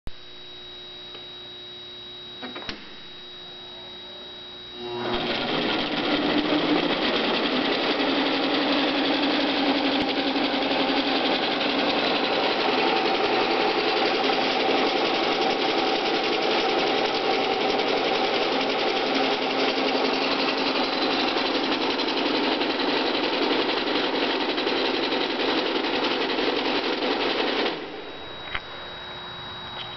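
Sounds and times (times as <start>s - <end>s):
faint steady hum: 0.1s - 5.3s, 27.9s - 29.9s
paper folder machine clatter: 5.2s - 27.9s.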